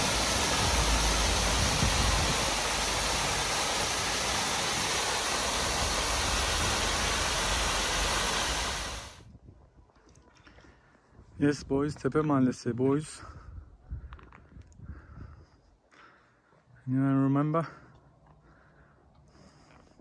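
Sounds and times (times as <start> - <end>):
waterfall pouring into pool: 0.0 - 9.2.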